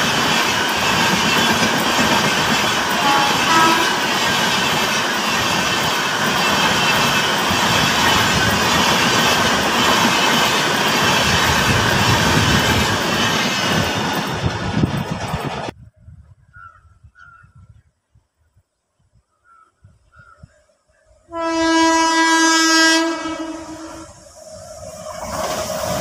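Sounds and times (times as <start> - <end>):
train wheels rumbling on rails: 0.0 - 15.8, 21.4 - 26.0.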